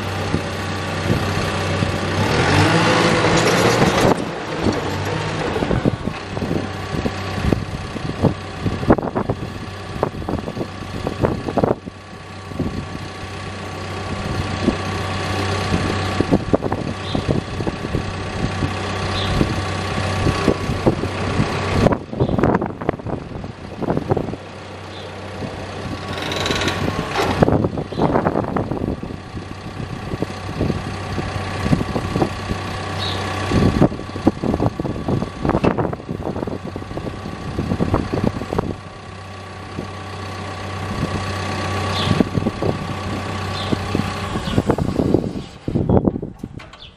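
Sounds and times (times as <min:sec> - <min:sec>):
bulldozer diesel engine: 0:00.0 - 0:46.9
hydraulic blade knocks and clunks: 0:26.0 - 0:27.5, 0:46.0 - 0:46.9.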